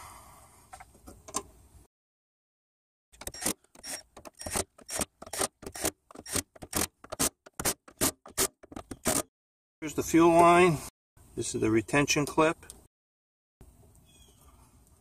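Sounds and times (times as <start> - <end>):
cordless drill driving screws: 3.2 - 9.2.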